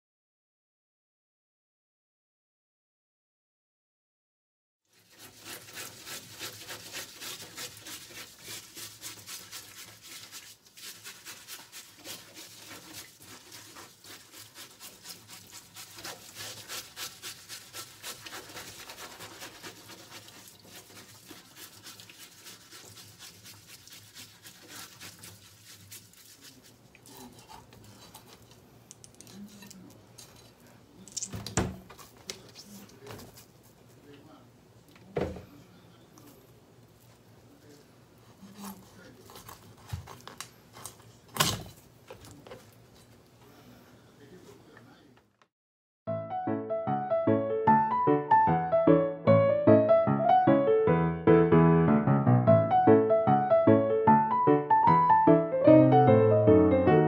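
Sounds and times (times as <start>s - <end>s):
fish scales being scraped: 4.9s - 30.6s, 38.3s - 42.4s
tap water running: 5.0s - 27.1s.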